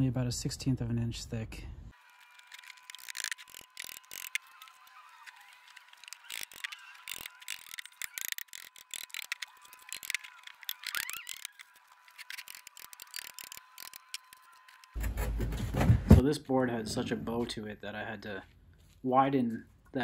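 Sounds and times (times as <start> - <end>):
squeaky scrapes of rod in wood: 2.2 - 15.1
threaded rod clicking and knocking: 2.5 - 4.4, 6.0 - 11.6, 12.2 - 14.9.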